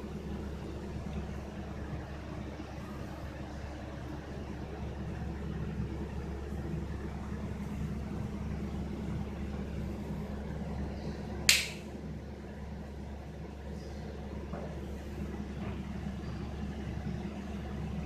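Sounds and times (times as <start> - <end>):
steady low hum: 0.0 - 18.0
sharp click: 11.5 - 11.8.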